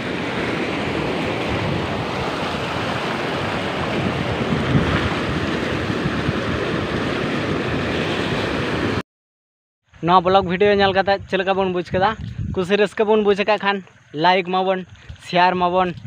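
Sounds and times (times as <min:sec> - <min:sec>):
floodwater rushing over rocks: 0:00.0 - 0:09.0.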